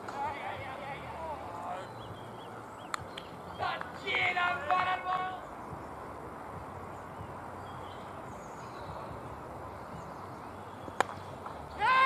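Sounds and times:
open-air background noise: 0.0 - 12.0
cricket bat striking ball: 11.0 - 11.3.

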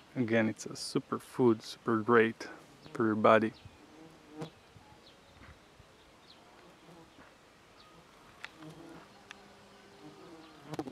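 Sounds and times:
bees buzzing: 3.8 - 4.6, 6.4 - 10.9.

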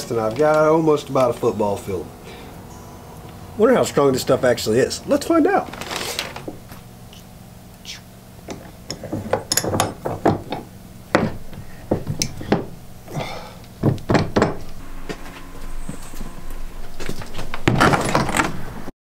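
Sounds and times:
faint low hum: 0.0 - 18.9
bench vise knocks and clicks: 8.5 - 12.8, 13.8 - 14.7.

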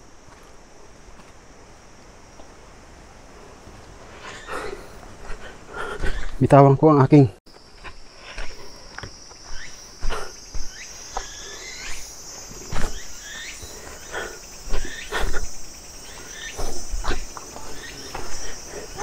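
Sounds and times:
insects droning: 0.0 - 19.0
footsteps on rocky trail: 0.2 - 1.8, 7.5 - 19.0.

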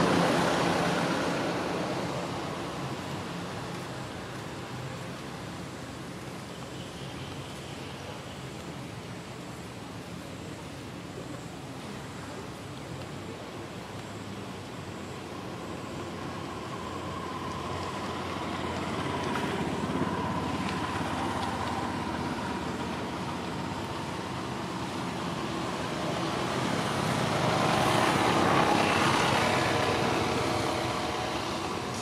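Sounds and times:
road traffic rumbling: 0.0 - 32.0
vehicle passing: 16.0 - 32.0.

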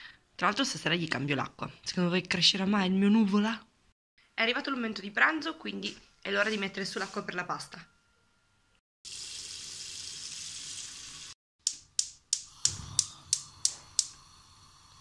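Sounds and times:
tap water running into pot: 9.1 - 11.4
gas igniter clicking: 11.6 - 14.2
gas burner hissing: 12.3 - 15.0.

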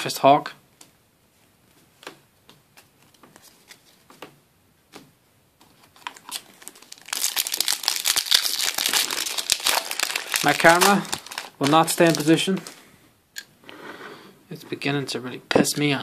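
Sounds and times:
foil pack crinkling: 5.8 - 12.8.

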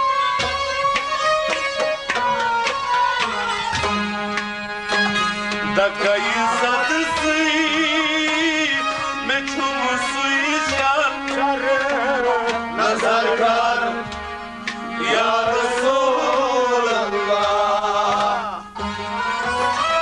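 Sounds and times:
harmonium drone: 0.0 - 20.0
man singing: 5.7 - 14.0, 15.0 - 18.8.

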